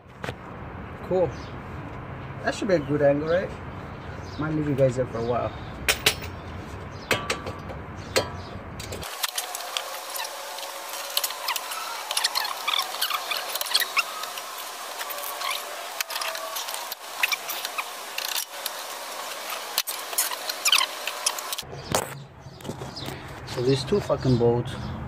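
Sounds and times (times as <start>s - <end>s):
wrenches knocking on metal: 5.9s - 6.4s, 7.0s - 9.0s
rapid clicks and squeaks: 11.1s - 18.8s, 19.5s - 23.0s.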